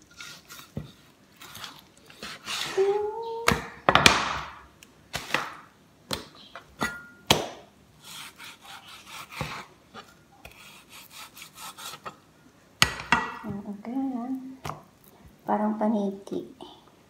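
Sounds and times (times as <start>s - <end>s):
blade scraping through meat: 8.0s - 9.7s, 10.5s - 12.2s.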